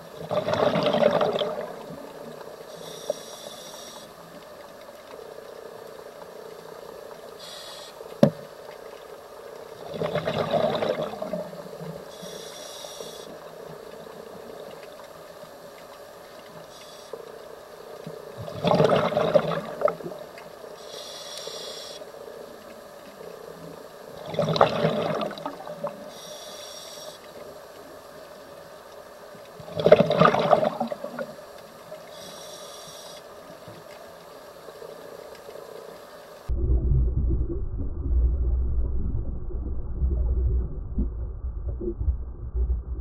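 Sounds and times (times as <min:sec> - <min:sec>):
exhaled bubbles underwater: 0:00.0 - 0:02.4, 0:09.7 - 0:11.7, 0:18.4 - 0:20.2, 0:24.1 - 0:26.1, 0:29.6 - 0:31.4, 0:36.5 - 0:43.0
regulator inhalation hiss: 0:02.7 - 0:04.2, 0:07.4 - 0:08.1, 0:12.1 - 0:13.4, 0:20.8 - 0:22.1, 0:26.1 - 0:27.2, 0:32.1 - 0:33.3.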